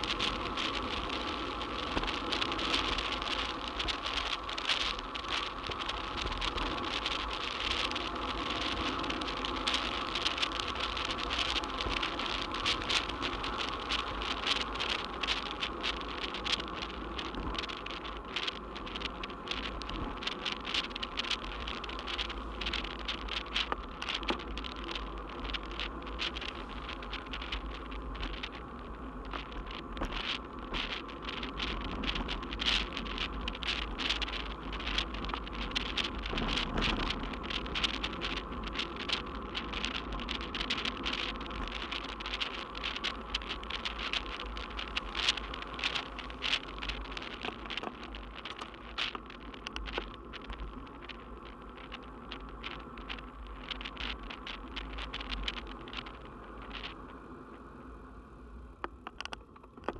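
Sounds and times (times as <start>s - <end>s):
bike rattling over road: 0.0s - 57.8s, 58.7s - 59.9s
wind rumble: 0.0s - 59.9s.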